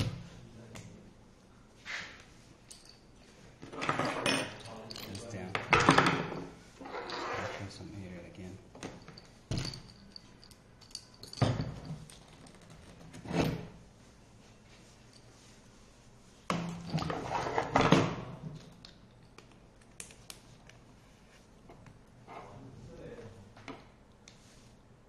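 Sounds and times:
clattering and scraping: 0:16.5 - 0:18.2.

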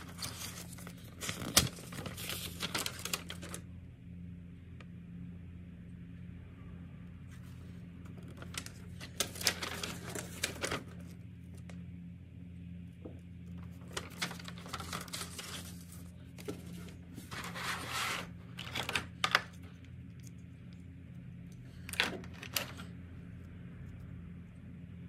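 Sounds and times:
paper rustling: 0:00.0 - 0:03.6, 0:07.3 - 0:11.7, 0:13.6 - 0:20.3, 0:21.7 - 0:22.9
plastic packaging crinkling: 0:00.0 - 0:03.6, 0:08.1 - 0:11.2, 0:13.6 - 0:19.7
low hum: 0:00.0 - 0:25.0.

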